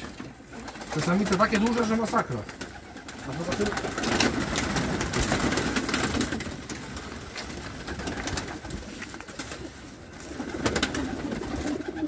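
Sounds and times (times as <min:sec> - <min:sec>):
rustles: 0:00.0 - 0:12.0
pigeons cooing: 0:10.2 - 0:12.0.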